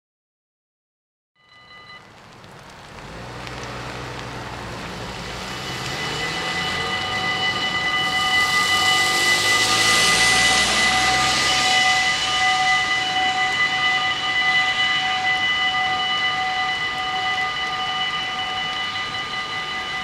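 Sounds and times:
level crossing warning bells: 0:01.4 - 0:02.3, 0:03.2 - 0:20.0
rushing hiss: 0:02.7 - 0:19.9.

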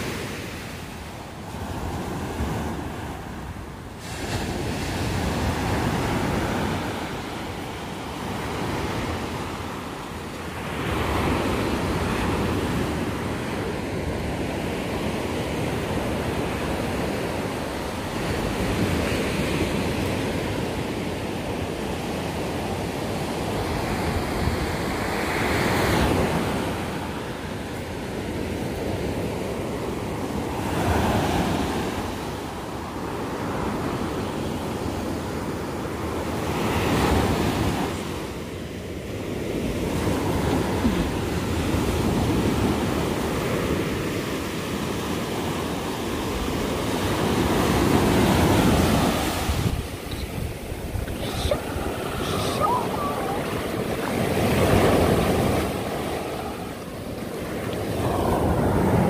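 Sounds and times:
waves breaking on sandy beach: 0:00.0 - 0:59.0
wind on microphone: 0:39.6 - 0:59.0.

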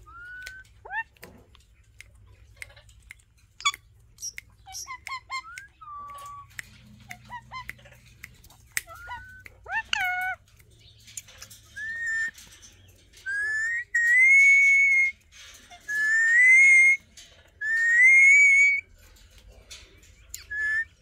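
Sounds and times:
parakeet whistling: 0:11.8 - 0:12.3, 0:13.3 - 0:15.2, 0:15.9 - 0:17.0, 0:17.6 - 0:18.8, 0:20.4 - 0:20.9.

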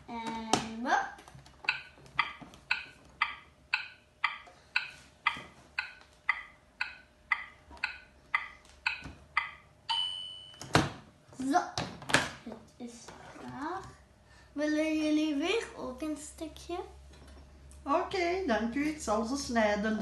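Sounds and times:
electronic timer ticking: 0:01.6 - 0:10.6.

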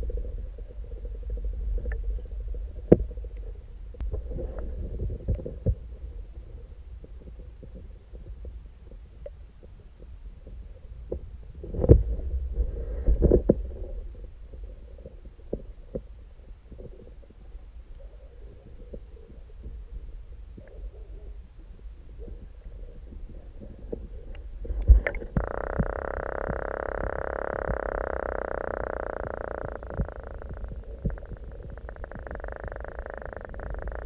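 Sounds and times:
muffled underwater rumble: 0:00.0 - 0:34.0
underwater clicks and knocks: 0:23.9 - 0:34.0.

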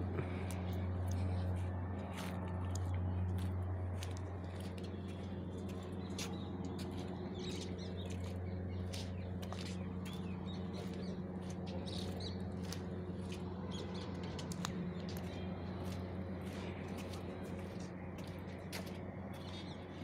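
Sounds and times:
steady low hum: 0:00.0 - 0:20.0
small birds chirping: 0:00.2 - 0:20.0.

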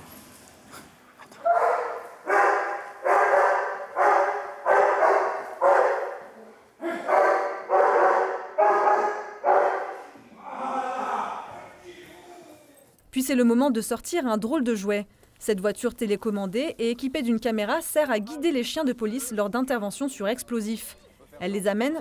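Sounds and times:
dog barking: 0:01.4 - 0:10.1.

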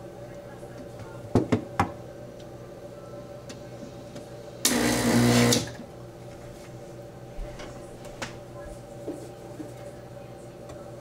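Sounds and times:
espresso machine hissing: 0:04.6 - 0:05.8.

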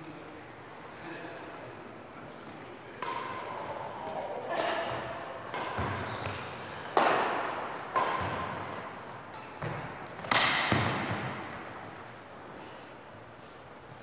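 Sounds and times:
rackets hitting shuttlecock: 0:02.9 - 0:11.9.

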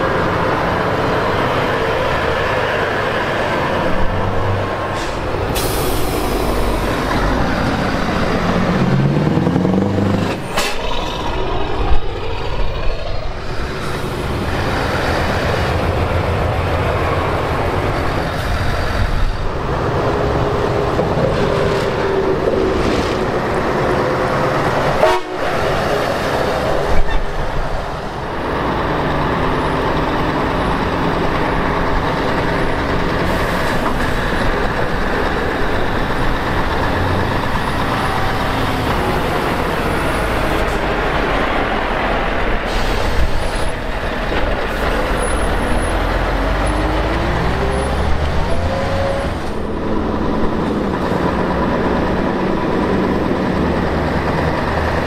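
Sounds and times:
diesel truck engines passing: 0:00.0 - 0:55.0
hiss of air: 0:05.0 - 0:06.7, 0:42.6 - 0:43.6
air horns: 0:25.0 - 0:25.7.

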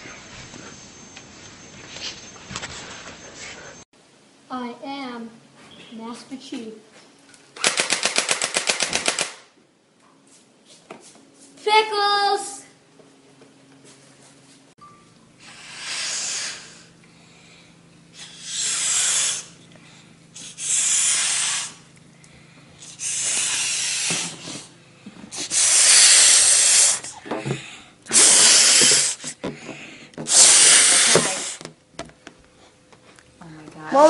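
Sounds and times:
breathy puffs blowing up balloon: 0:15.4 - 0:17.0, 0:18.1 - 0:19.6, 0:20.3 - 0:21.9, 0:22.8 - 0:31.7.

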